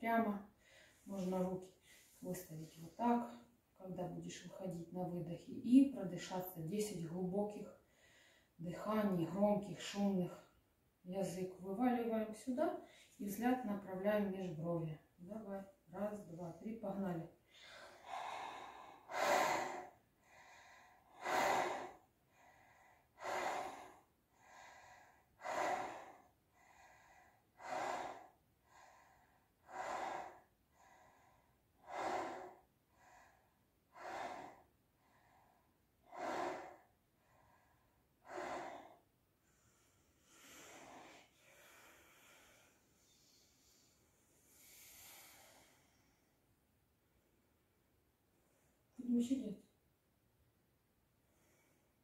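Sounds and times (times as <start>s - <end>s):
quiet inhalations: 0.5s - 3.6s, 7.7s - 8.6s, 12.8s - 13.3s, 15.7s - 49.0s, 51.1s - 52.0s.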